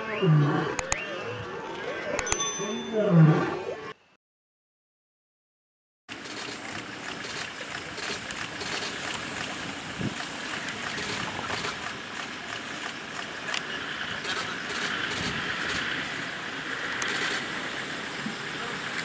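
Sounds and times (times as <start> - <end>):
wind hiss: 6.9 - 19.0.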